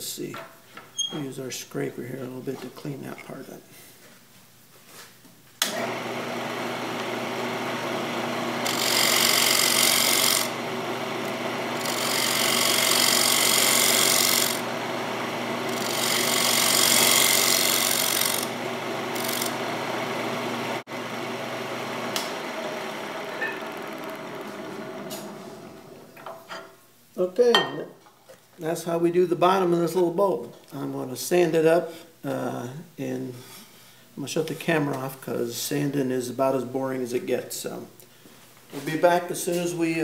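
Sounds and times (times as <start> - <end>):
lathe motor humming: 5.7 - 26.1
scraper scraping spinning wood: 8.6 - 10.6, 11.2 - 14.7, 15.6 - 19.6.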